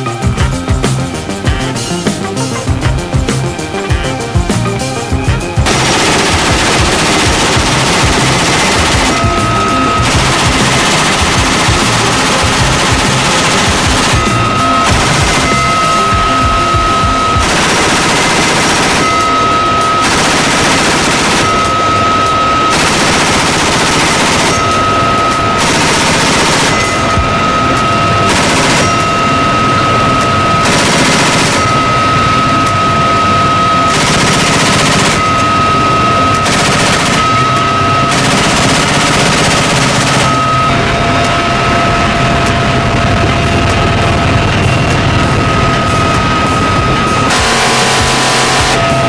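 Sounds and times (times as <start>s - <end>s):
helicopter whine: 0.0s - 49.0s
machine gun firing bursts: 5.6s - 32.9s, 33.6s - 41.4s, 45.8s - 49.0s.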